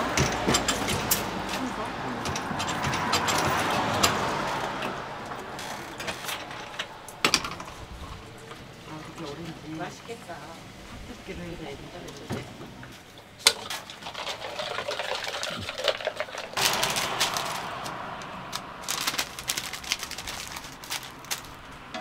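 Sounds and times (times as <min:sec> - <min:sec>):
water pouring into cup: 0:13.8 - 0:16.7
paper sleeve rustling: 0:16.6 - 0:21.7.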